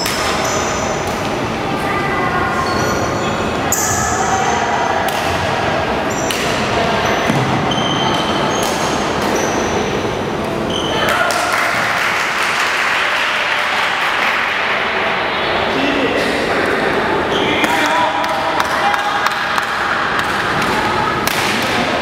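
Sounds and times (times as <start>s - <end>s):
spectators chattering: 0.0s - 22.0s
shoes squeaking on court: 7.0s - 9.8s
racket hitting shuttlecock: 17.6s - 22.0s.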